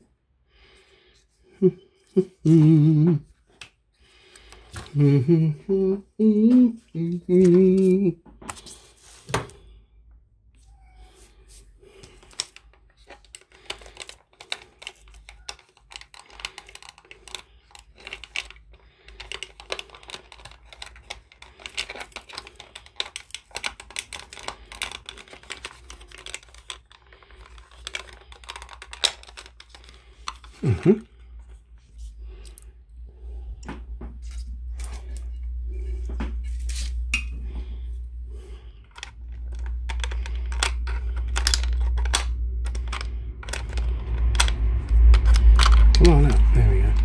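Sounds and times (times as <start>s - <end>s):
person humming: 1.5s - 3.3s, 4.9s - 8.2s, 30.6s - 31.1s
small plastic parts clicking: 12.0s - 31.0s, 38.8s - 47.0s.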